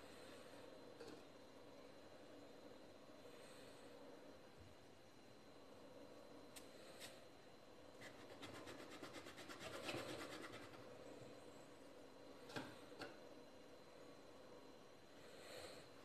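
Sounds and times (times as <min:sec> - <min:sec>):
tumbler scraping dough on marble: 0:08.0 - 0:11.0.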